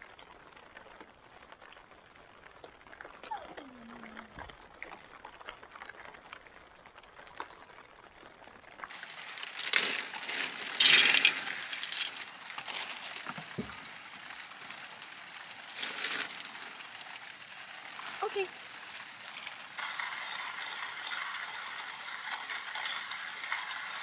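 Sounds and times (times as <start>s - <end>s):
faint outdoor ambience: 0.0s - 24.0s
dry kibble rattling into bowl: 8.9s - 24.0s
plastic bag crinkling: 8.9s - 24.0s.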